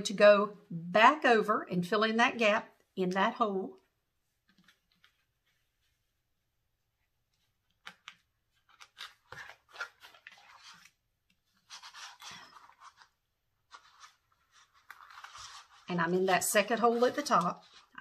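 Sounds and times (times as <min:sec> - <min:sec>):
elastic cord rustling and scraping: 0:04.3 - 0:06.3, 0:07.0 - 0:18.0.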